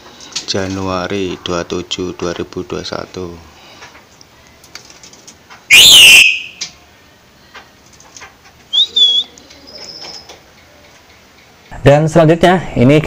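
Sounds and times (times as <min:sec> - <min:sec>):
birds whistling calls: 0:05.7 - 0:06.8, 0:08.7 - 0:10.4.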